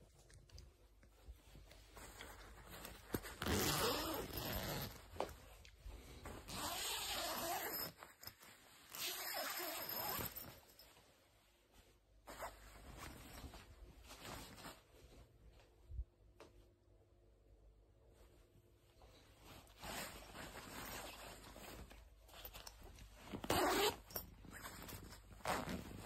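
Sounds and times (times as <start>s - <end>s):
nylon rustling: 0.0s - 15.9s, 18.1s - 26.0s
zipper being drawn: 3.1s - 5.1s, 6.5s - 8.2s, 8.8s - 10.6s, 23.4s - 24.8s.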